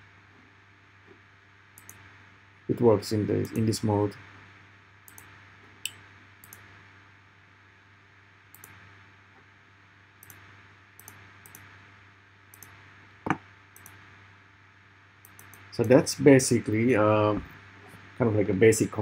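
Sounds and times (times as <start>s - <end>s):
faint steady hum: 0.0s - 19.0s
computer mouse clicking: 1.8s - 2.0s, 5.1s - 5.3s, 6.4s - 6.6s, 8.5s - 8.8s, 10.2s - 10.4s, 11.0s - 11.7s, 12.5s - 14.0s, 15.2s - 16.0s.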